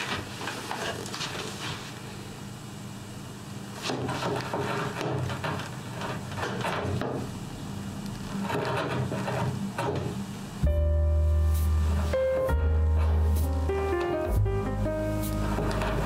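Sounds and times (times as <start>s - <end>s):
metal tool scratching wood: 3.8s - 7.0s, 8.3s - 10.0s.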